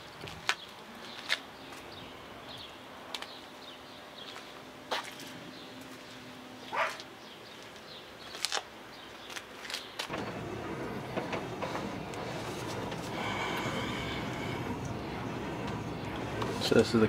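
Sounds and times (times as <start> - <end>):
car interior engine rumble: 10.1 - 17.0.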